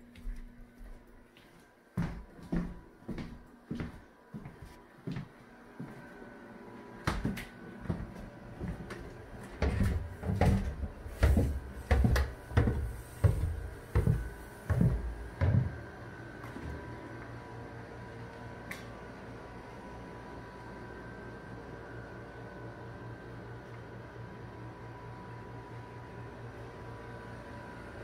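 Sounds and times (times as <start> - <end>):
heavy footsteps down stairs: 0.0 - 6.0, 7.0 - 16.9
faint steady hum: 0.0 - 28.0.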